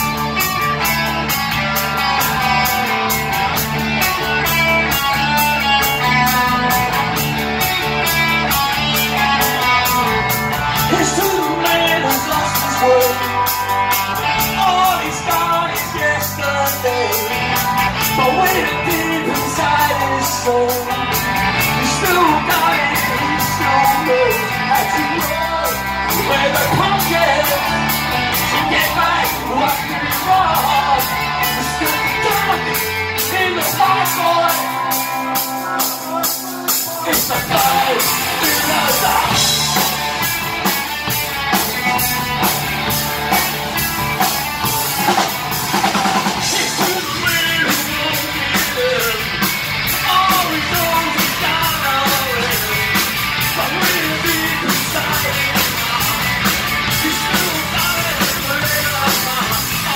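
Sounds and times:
live rock band playing: 0.0s - 59.9s
man singing lead vocal: 8.9s - 40.2s, 46.1s - 59.9s.

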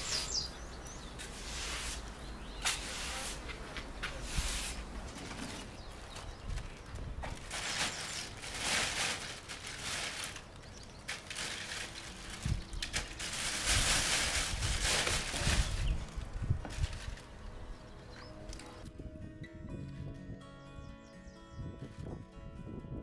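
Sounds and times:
plastic bag rustling: 4.1s - 17.6s.

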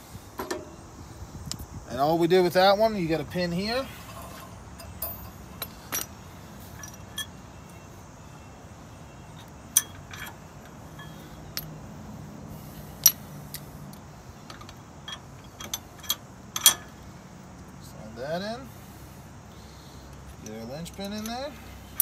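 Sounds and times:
sharp metal clicks and clinks: 4.1s - 6.2s, 6.8s - 7.4s, 9.7s - 11.8s, 13.0s - 17.0s, 20.1s - 22.0s.

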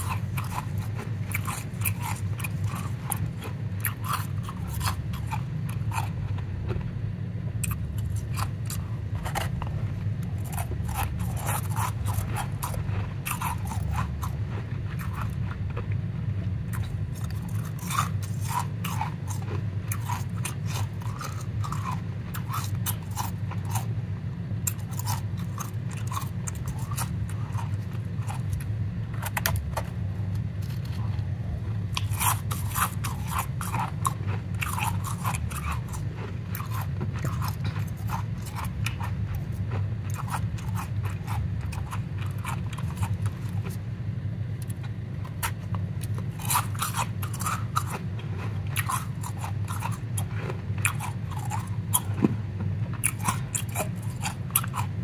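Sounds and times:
powdery ice crunching: 0.0s - 6.1s, 7.6s - 15.4s, 31.9s - 39.1s, 46.0s - 52.2s
low steady hum: 0.0s - 55.0s.

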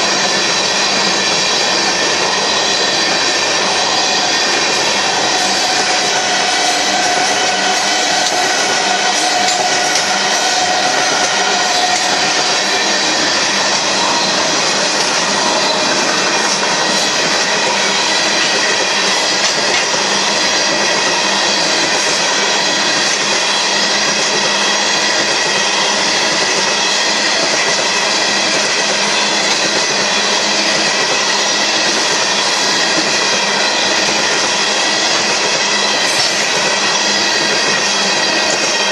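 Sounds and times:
steel train wheels on rail: 0.0s - 38.9s
high-pitched wheel squeal: 0.1s - 38.9s.

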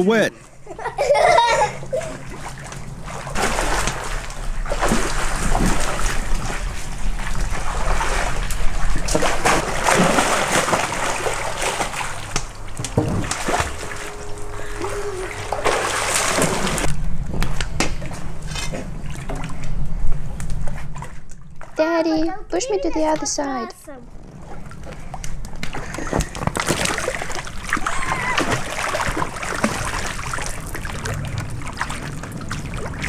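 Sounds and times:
water splashing in a pool: 1.2s - 16.9s, 17.9s - 19.8s, 24.3s - 33.0s.

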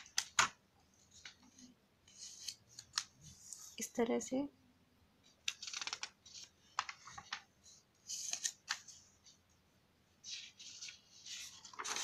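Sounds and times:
notebook pages rustling: 5.3s - 9.4s, 10.2s - 12.0s.

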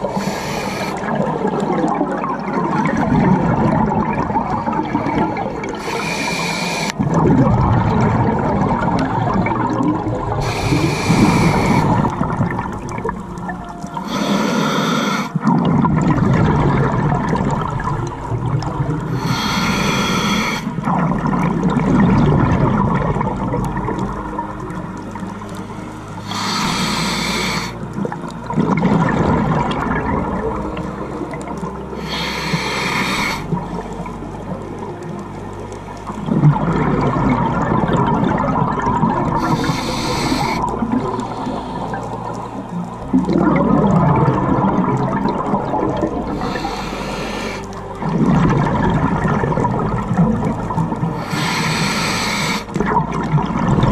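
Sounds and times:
regulator breathing underwater: 0.0s - 1.5s, 3.8s - 7.3s, 10.4s - 16.1s, 19.0s - 21.3s, 25.6s - 29.3s, 31.0s - 33.6s, 39.3s - 42.7s, 46.3s - 48.6s, 51.1s - 53.0s
gurgling exhaled bubbles: 0.0s - 53.9s
low rumbling water noise: 0.0s - 53.9s.

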